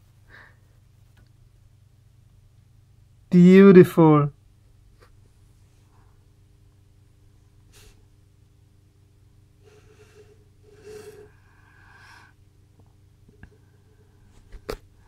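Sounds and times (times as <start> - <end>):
person breathing: 0.2 - 0.8, 7.7 - 8.1, 9.6 - 12.4
person sniffing: 7.7 - 8.1, 9.6 - 12.4
breathy exhale: 9.6 - 12.4.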